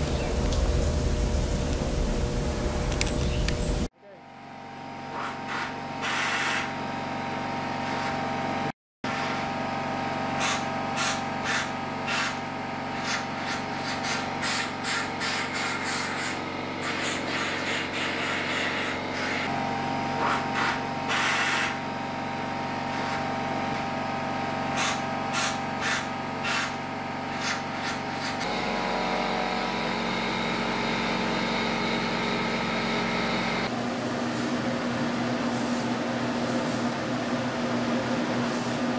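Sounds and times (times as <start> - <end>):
machine hum: 0.0 - 38.9
compressed air hissing blasts: 10.4 - 19.5, 24.7 - 28.4.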